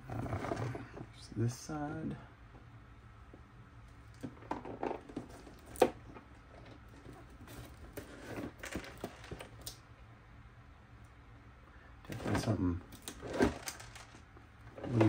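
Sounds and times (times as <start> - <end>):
parts rattling inside cardboard box: 4.3 - 9.6, 12.1 - 15.0.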